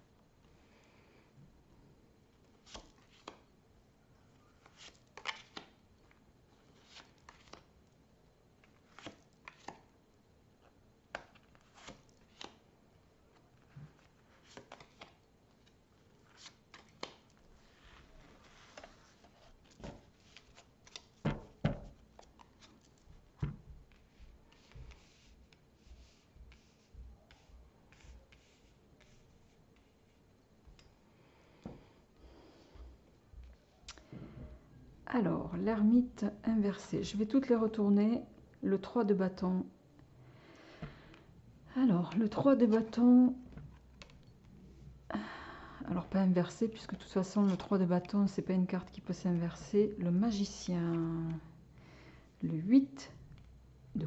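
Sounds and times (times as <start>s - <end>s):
cards shuffled and laid down: 2.6s - 3.5s, 4.6s - 5.8s, 6.7s - 7.7s, 8.6s - 9.9s, 11.1s - 12.6s, 13.3s - 30.0s.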